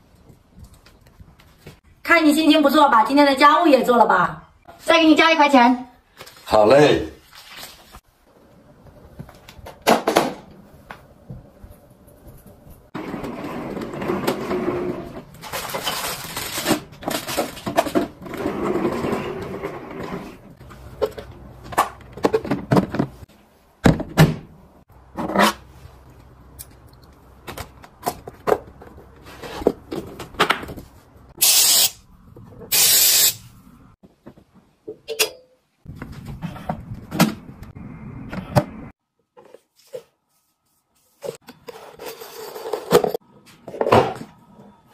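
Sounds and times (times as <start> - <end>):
short hissing bursts: 31.4 - 32.0, 32.7 - 33.5.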